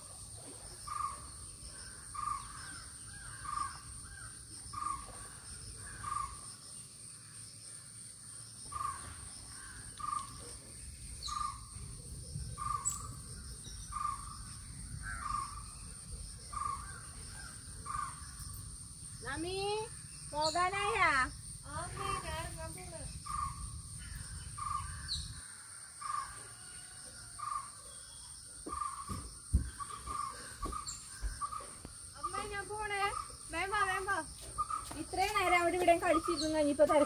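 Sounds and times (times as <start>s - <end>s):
high drone of insects: 0.0s - 37.0s
bird calling: 27.4s - 37.0s.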